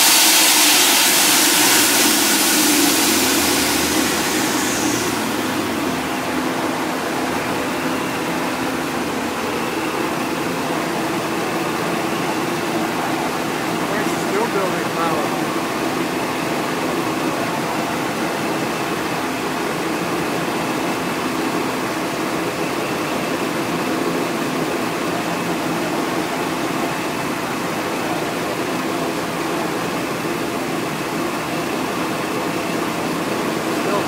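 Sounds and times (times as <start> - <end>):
car engine idling: 1.1 - 7.8.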